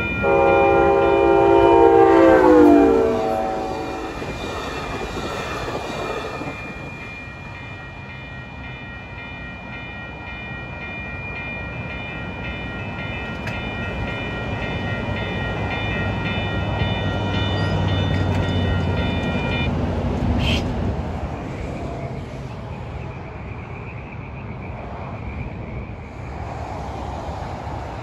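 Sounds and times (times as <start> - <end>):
train horn: 0.0 - 4.4
steady high tones ringing: 0.0 - 19.8
train rumbling past: 0.0 - 28.0.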